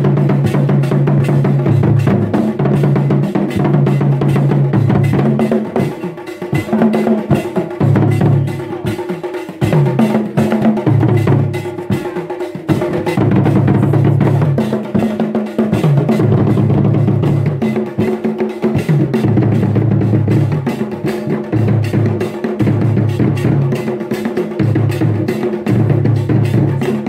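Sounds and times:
drum ensemble playing fast rhythm: 0.0 - 27.0.

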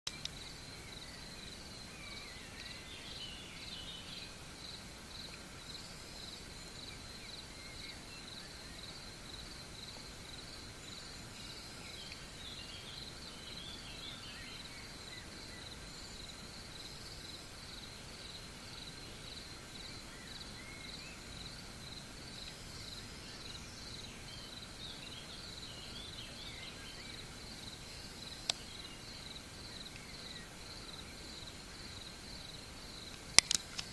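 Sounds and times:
cricket chirping: 0.1 - 33.9
sharp click: 33.4 - 33.9.

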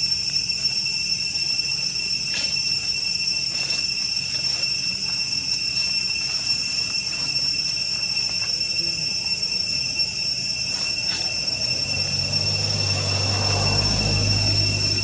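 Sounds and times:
high-pitched drone: 0.0 - 15.0
low engine hum: 11.2 - 15.0.

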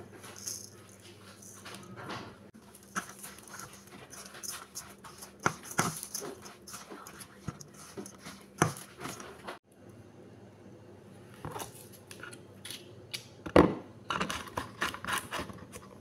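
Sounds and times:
hand mixing food in a bowl: 0.0 - 9.6.

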